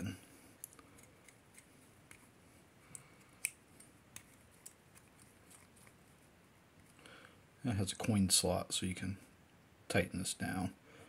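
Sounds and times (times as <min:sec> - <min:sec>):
small metal parts clicking and scraping: 0:02.9 - 0:06.0.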